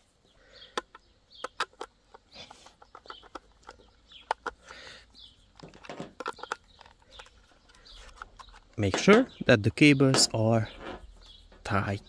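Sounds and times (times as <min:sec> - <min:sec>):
knocks handling plastic case: 0:05.5 - 0:09.5
screwdriver clicks and scrapes: 0:05.6 - 0:08.9.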